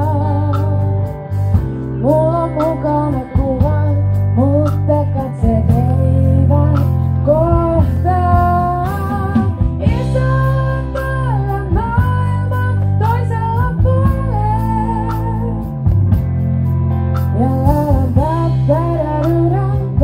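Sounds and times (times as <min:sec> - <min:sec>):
person singing: 0:00.0 - 0:01.1, 0:01.8 - 0:15.7, 0:17.4 - 0:20.0
electric guitars: 0:00.0 - 0:20.0
strong steady bass: 0:00.0 - 0:20.0.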